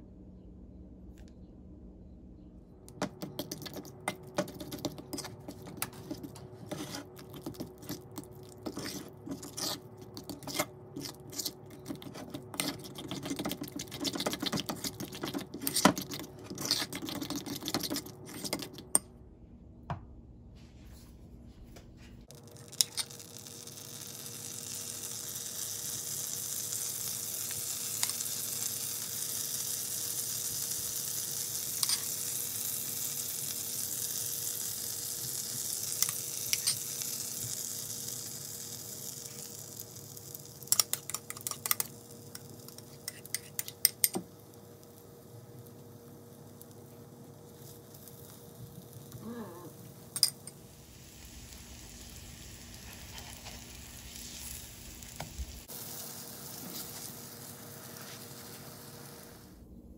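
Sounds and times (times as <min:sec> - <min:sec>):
butter sizzling in a frying pan: 0:03.4 - 0:18.2, 0:22.4 - 0:59.6
utensil scraping a ceramic bowl: 0:04.4 - 0:08.0, 0:08.6 - 0:18.8.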